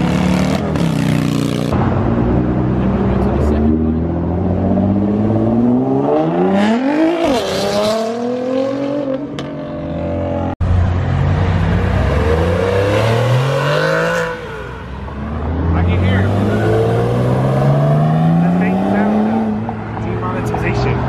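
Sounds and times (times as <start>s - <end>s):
car engine accelerating: 1.7s - 21.0s
car engine rising in pitch: 1.8s - 20.0s.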